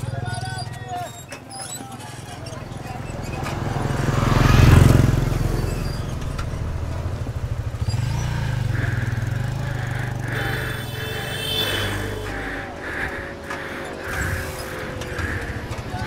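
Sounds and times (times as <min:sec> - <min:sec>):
motorcycle engine running: 0:02.9 - 0:16.0.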